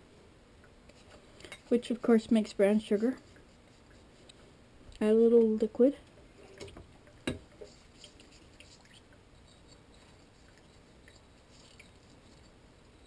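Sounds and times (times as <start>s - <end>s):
soft scrapes in a bowl: 0.9s - 4.6s, 7.5s - 13.0s.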